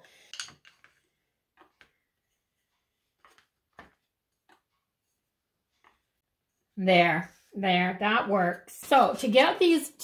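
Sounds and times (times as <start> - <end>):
wooden dowels clicking on tray: 0.2 - 1.0.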